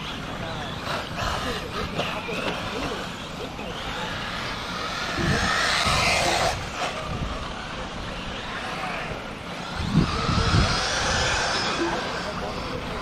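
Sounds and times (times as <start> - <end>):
rc car motors whining: 0.0 - 13.0.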